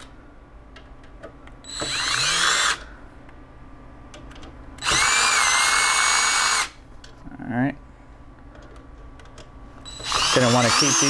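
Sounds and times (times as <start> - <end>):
cordless drill whining: 1.7 - 2.8, 4.8 - 6.7, 9.9 - 11.0.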